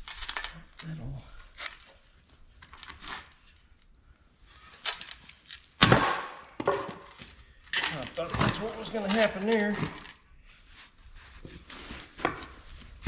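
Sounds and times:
light scraping and handling: 6.9s - 13.0s.

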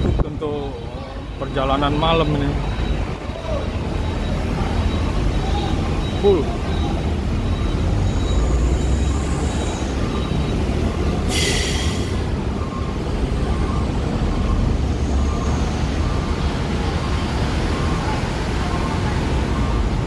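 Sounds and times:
truck and bus engines rumbling: 0.0s - 20.0s.

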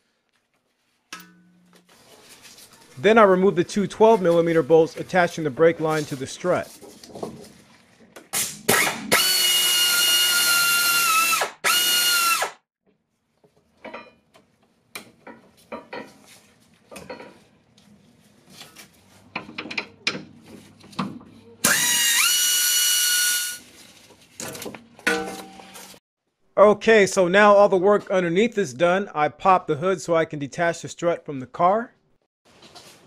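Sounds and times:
cordless power tool whining: 8.7s - 12.5s.

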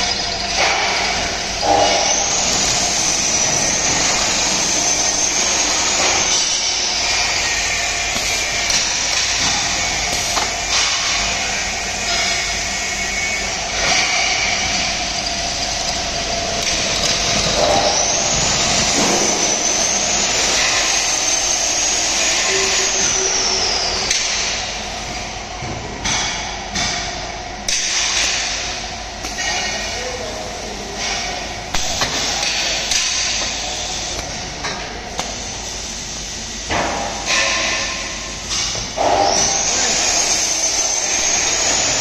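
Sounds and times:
drilling machine din with whine: 0.0s - 42.0s.

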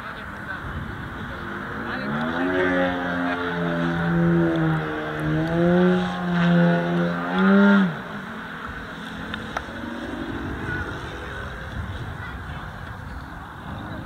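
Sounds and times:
wind: 0.0s - 14.0s
propeller plane engine: 8.0s - 12.7s.

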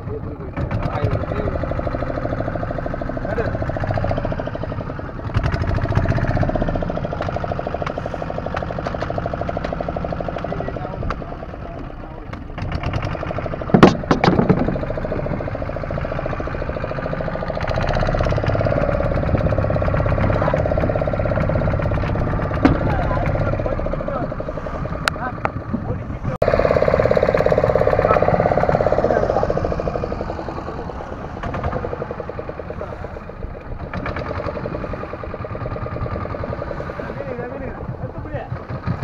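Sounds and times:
boat engine chugging: 0.0s - 39.0s
loud sharp knocks: 13.6s - 15.4s, 21.9s - 23.5s.

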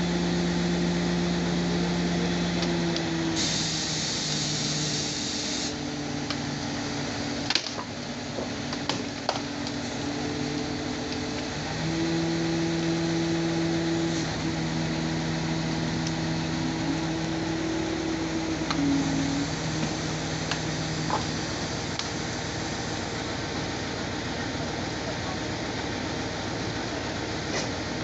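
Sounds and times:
truck engine and hydraulics droning: 0.0s - 28.0s
high hiss: 3.3s - 5.8s.

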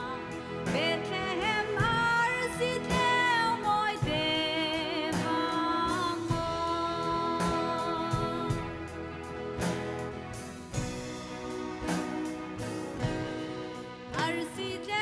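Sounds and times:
woman singing: 0.0s - 8.9s, 14.1s - 15.0s
instrumental accompaniment: 0.0s - 15.0s.

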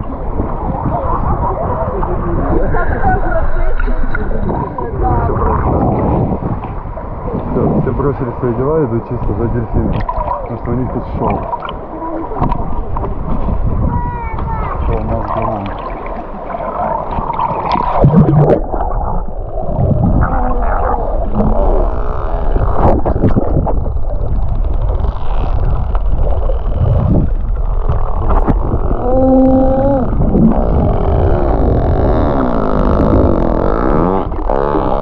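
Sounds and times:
muffled underwater gurgling: 0.0s - 35.0s
water sloshing and splashing: 0.0s - 35.0s
loud splash: 14.7s - 21.7s.

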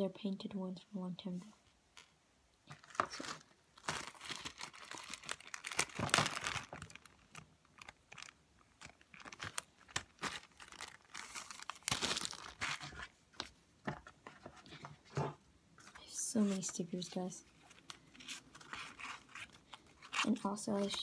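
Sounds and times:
plastic bags crinkling: 2.7s - 13.1s, 17.5s - 21.0s.

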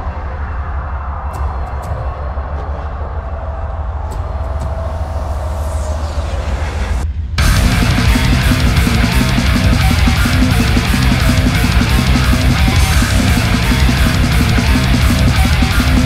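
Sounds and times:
driving drum beat: 7.4s - 16.0s
heavy rock music: 7.4s - 16.0s.

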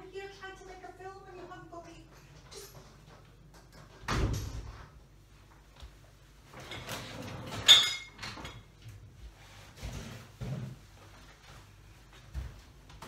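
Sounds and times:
chair moving: 6.5s - 8.7s.

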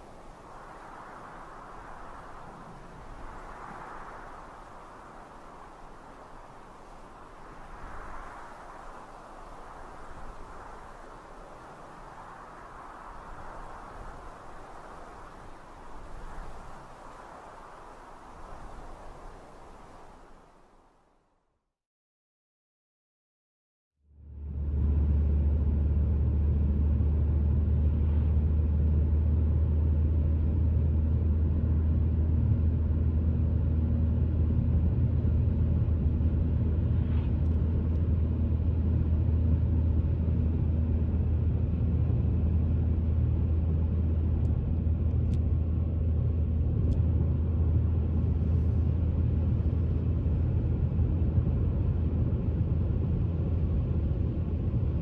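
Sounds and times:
car interior road rumble: 24.2s - 55.0s.

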